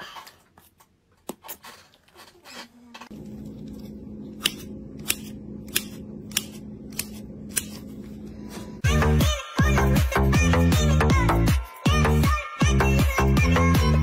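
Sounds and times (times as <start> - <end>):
steady low hum: 3.1 - 8.8.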